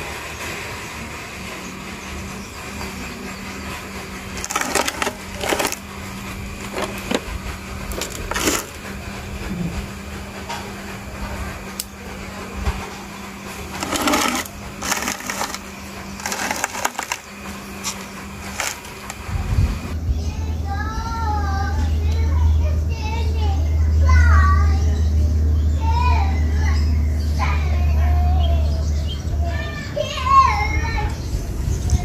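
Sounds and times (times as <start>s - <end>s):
low hum: 0.0s - 25.8s
hand tools clicking on twigs: 4.3s - 5.9s, 6.6s - 7.3s, 7.9s - 8.8s, 13.7s - 19.2s.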